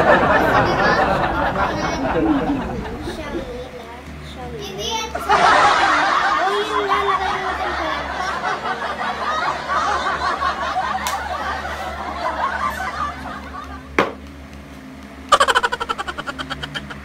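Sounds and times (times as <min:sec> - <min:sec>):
sharp knock: 0:14.0 - 0:14.2
person giggling: 0:15.3 - 0:17.0
person snickering: 0:15.3 - 0:17.0.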